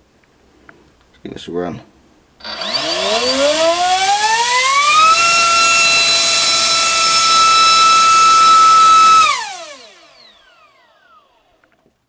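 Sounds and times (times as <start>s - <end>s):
electric motor whine: 2.4s - 11.6s.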